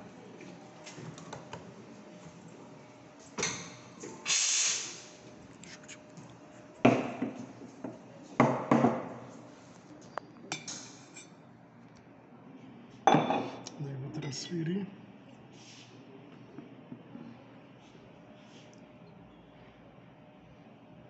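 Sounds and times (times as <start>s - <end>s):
steam wand hissing: 4.3s - 5.2s.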